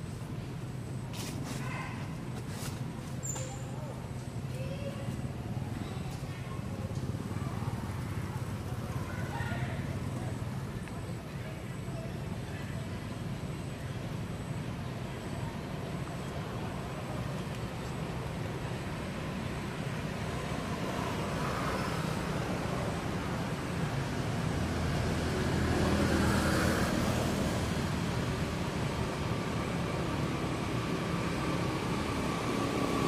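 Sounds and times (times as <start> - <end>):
low rumble of road traffic: 0.0 - 33.0.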